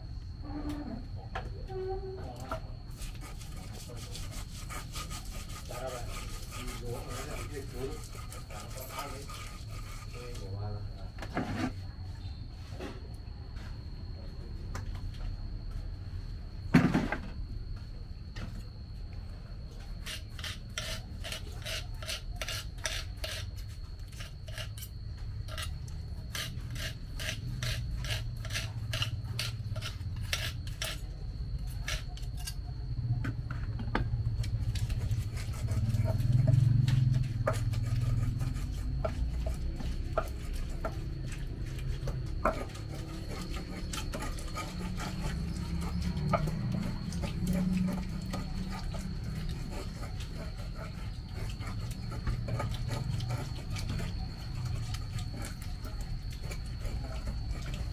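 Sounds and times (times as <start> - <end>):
stone pestle grinding in mortar: 2.9 - 10.4, 20.0 - 32.6, 34.4 - 57.9.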